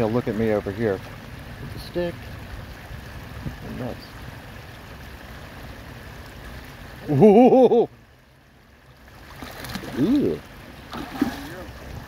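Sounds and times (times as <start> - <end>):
water lapping: 9.0 - 12.0.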